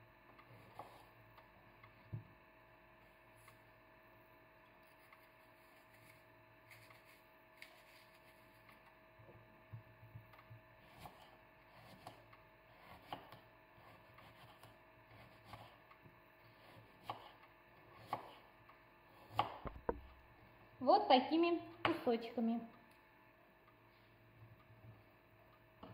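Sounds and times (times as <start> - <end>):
knife cutting on wooden board: 16.6 - 17.4.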